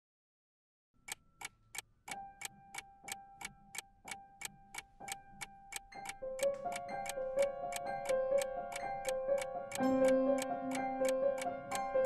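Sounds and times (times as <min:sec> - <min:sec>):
clock ticking: 0:01.0 - 0:12.0.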